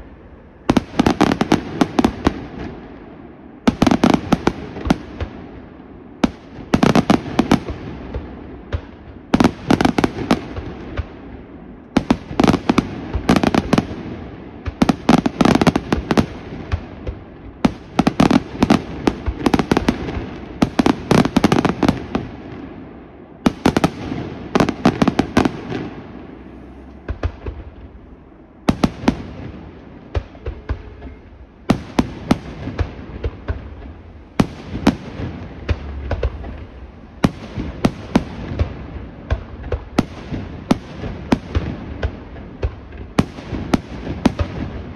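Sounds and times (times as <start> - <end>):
fireworks bangs and crackles: 0.0 - 44.9
low rumbling echo: 15.8 - 44.9.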